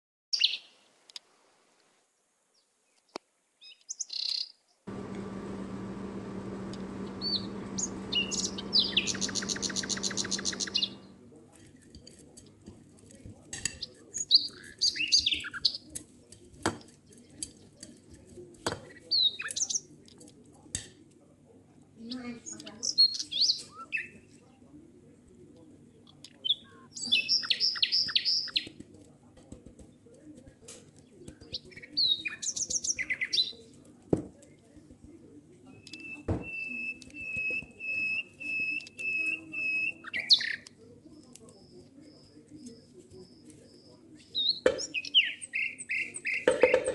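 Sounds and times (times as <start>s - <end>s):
small birds chirping: 2.6s - 11.3s, 41.4s - 46.9s
bird whistling notes: 7.2s - 11.0s
squawky gliding bird chirps: 7.2s - 11.1s.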